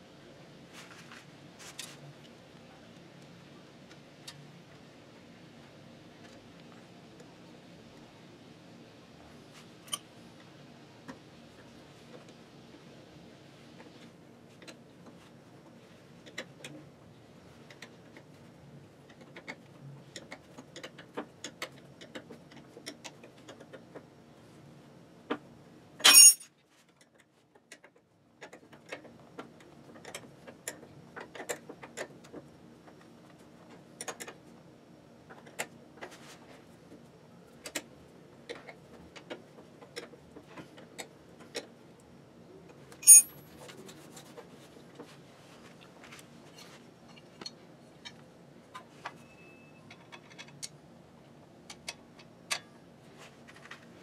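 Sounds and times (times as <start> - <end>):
wrenches clinking on metal: 26.0 - 26.5, 43.0 - 43.3.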